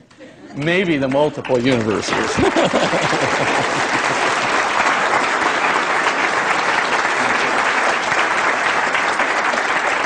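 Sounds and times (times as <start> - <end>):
audience applauding: 0.5 - 10.0.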